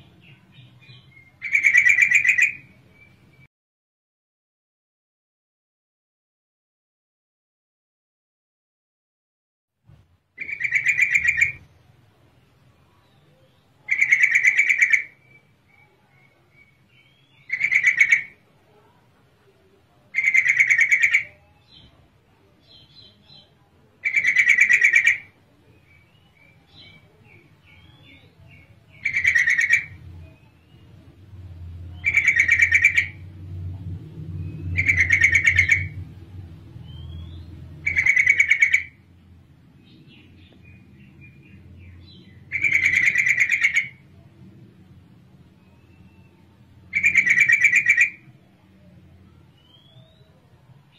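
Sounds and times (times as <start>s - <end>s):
soft bird chirps: 0.0s - 3.5s, 10.4s - 39.1s, 39.7s - 50.9s
bird calling: 1.0s - 3.4s, 10.4s - 11.7s, 13.9s - 18.4s, 26.4s - 30.5s, 31.9s - 33.3s, 34.4s - 36.0s, 36.9s - 39.0s, 41.4s - 44.0s, 45.7s - 48.3s
low rumble: 29.9s - 37.9s.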